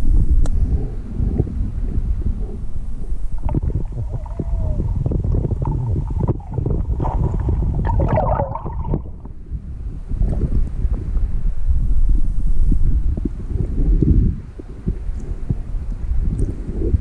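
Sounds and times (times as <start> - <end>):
muffled underwater rumble: 0.0 - 17.0
wavering gurgles: 0.6 - 9.4.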